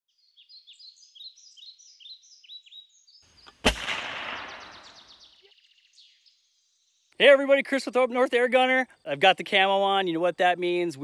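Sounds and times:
birds chirping: 0.1s - 11.0s
gunshot with echo: 3.6s - 5.2s.

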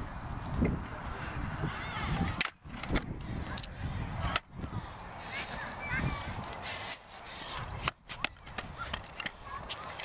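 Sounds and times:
scooter wheels rolling on concrete: 0.0s - 10.0s
scooter clacking on ground: 6.9s - 10.0s.

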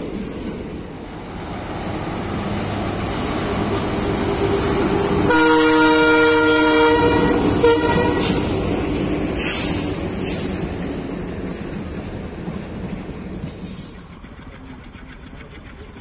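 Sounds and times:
diesel locomotive rumble: 0.0s - 16.0s
locomotive horn blast: 5.2s - 8.5s.

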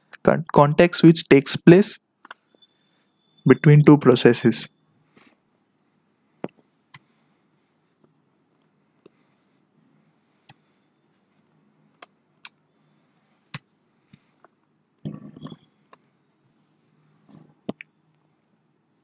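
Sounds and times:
keyboard and mouse clicks: 11.9s - 12.6s, 13.5s - 16.1s.

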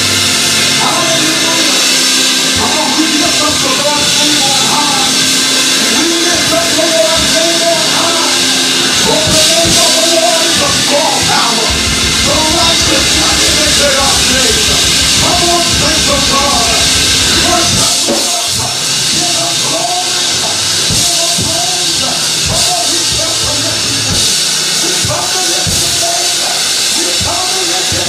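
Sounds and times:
band with drum kit: 0.0s - 28.0s
man singing into a microphone: 9.0s - 16.8s
deep bass: 10.6s - 18.0s.

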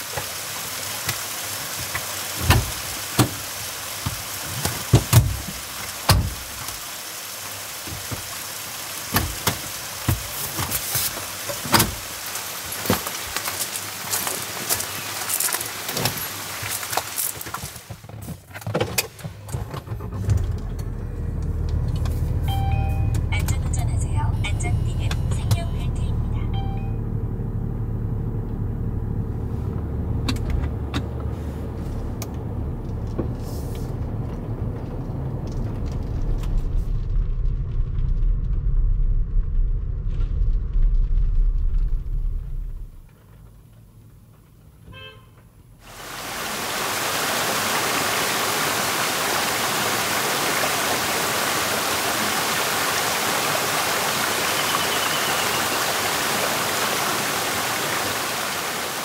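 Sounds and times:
stream water flowing: 0.0s - 17.9s, 45.8s - 59.0s
car driving rumble: 18.4s - 58.7s.

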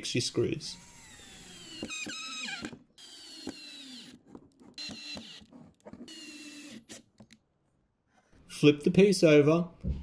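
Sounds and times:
cordless drill driving screws: 0.7s - 7.1s
drill clicks: 0.8s - 7.4s.

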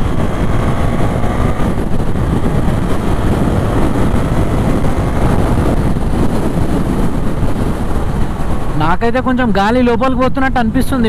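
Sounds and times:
motorcycle engine accelerating: 0.0s - 8.8s
wind rush on microphone: 0.0s - 11.0s.

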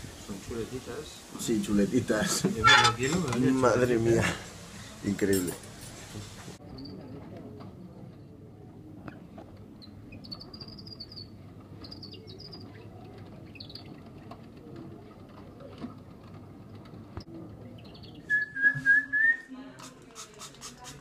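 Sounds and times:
wavering squeaks: 2.6s - 3.2s.

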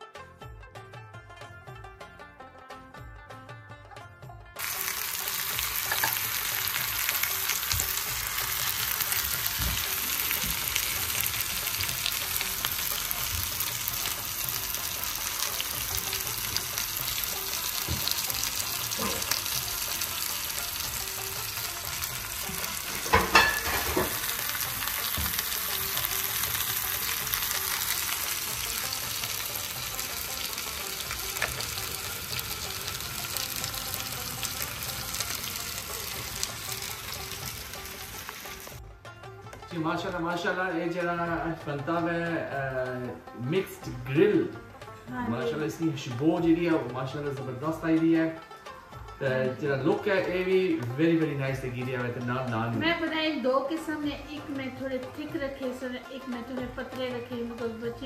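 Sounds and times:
meat sizzling in a pan: 4.6s - 38.8s.

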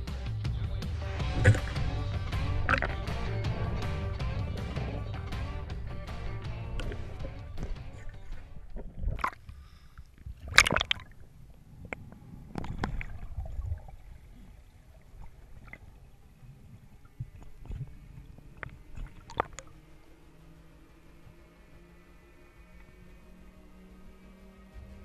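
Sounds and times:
water gurgling and sloshing: 0.0s - 25.0s
sharp clicks: 6.0s - 9.6s.

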